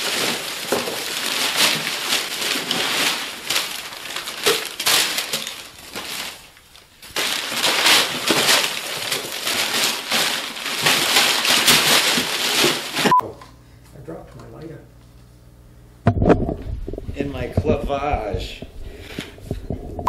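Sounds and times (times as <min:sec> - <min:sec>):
paper crumpling and rustling: 0:00.0 - 0:13.1.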